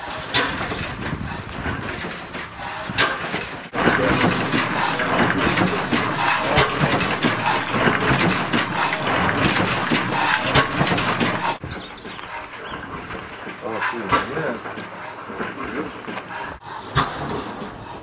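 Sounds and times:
engine running steadily: 3.8 - 11.6.

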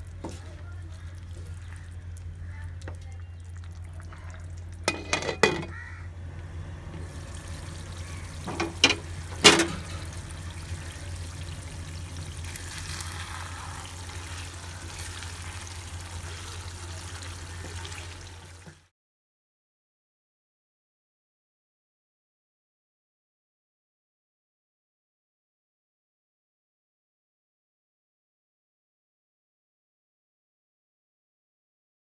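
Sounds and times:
steady low hum: 0.0 - 17.3
glass lid clattering onto pan: 4.9 - 5.7, 8.5 - 9.9
cookware knocks: 4.9 - 5.8, 8.5 - 9.8
food sizzling in a wok: 7.0 - 18.9.

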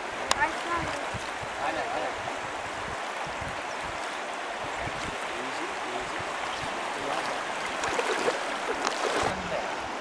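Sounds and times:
water rushing over rocks: 0.0 - 10.0.

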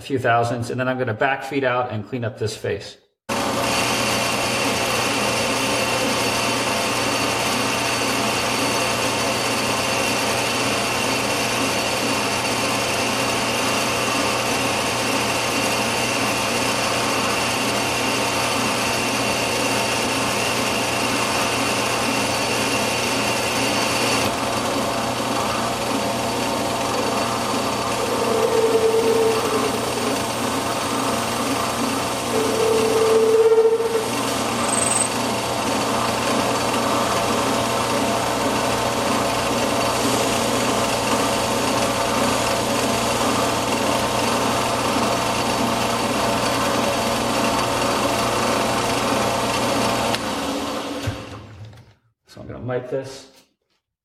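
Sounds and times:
metal lathe gearing whining: 3.4 - 51.0
short squeals: 27.5 - 31.3, 32.0 - 35.2.

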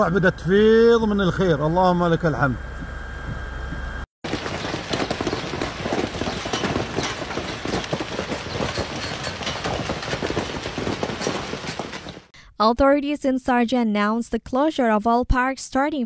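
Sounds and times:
hailstones pelting a paved road: 4.2 - 12.3.

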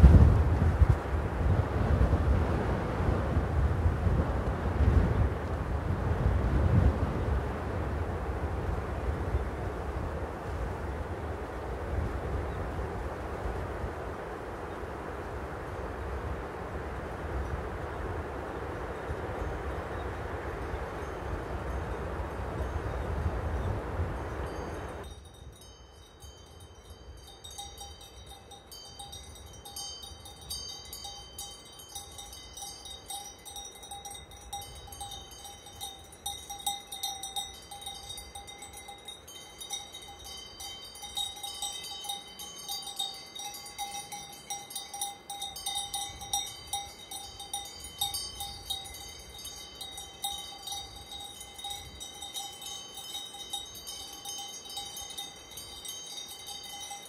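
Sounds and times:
small metal bells ringing: 24.5 - 57.0
steady ringing tone: 24.6 - 57.0.

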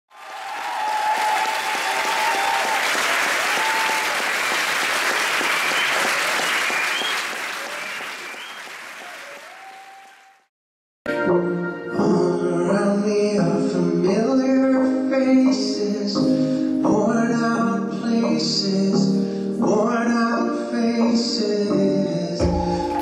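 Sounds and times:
audience applauding: 0.1 - 10.5, 22.5 - 23.0.

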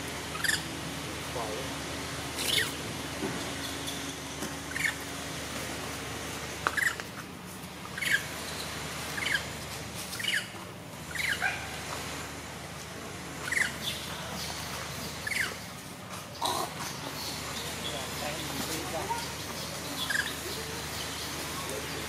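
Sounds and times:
baby monkey squeaking: 19.9 - 20.4.

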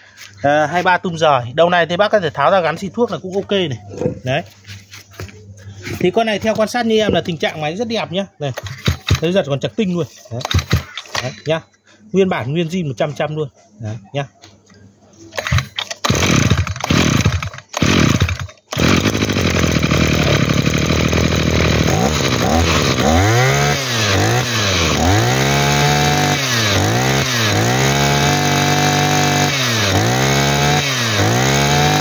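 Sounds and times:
brush cutter engine revving: 8.6 - 9.4, 10.4 - 11.4, 15.4 - 32.0
pull cord pulls: 8.6 - 9.4, 10.3 - 11.5, 15.3 - 32.0.

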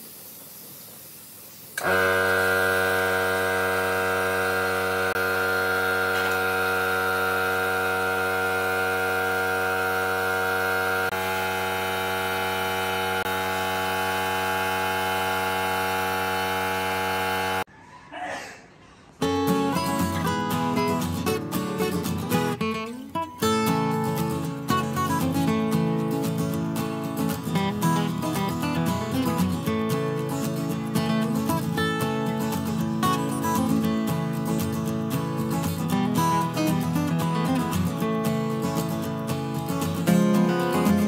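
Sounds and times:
electric motor humming: 1.8 - 17.7.

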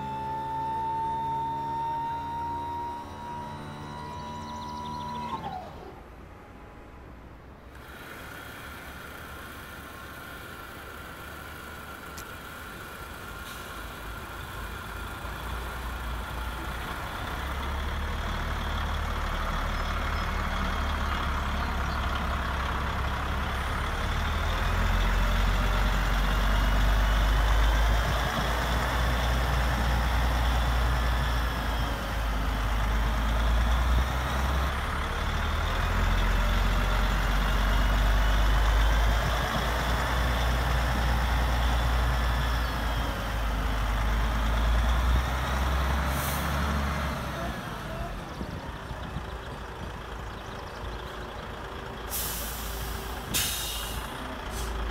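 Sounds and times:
simulated diesel truck engine: 0.0 - 54.9
short hiss: 52.1 - 54.8.

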